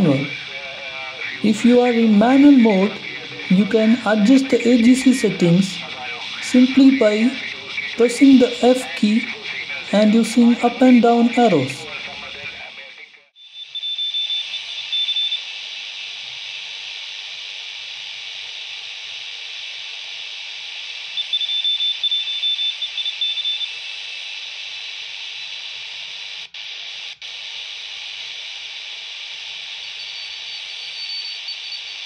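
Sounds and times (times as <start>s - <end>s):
receiver hiss: 0.0s - 32.0s
high-pitched morse code tone: 1.4s - 11.9s.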